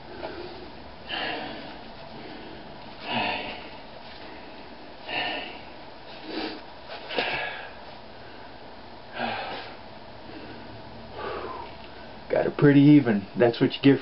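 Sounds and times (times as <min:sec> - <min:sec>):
man breathing through nose: 0:00.1 - 0:08.5, 0:09.1 - 0:12.0.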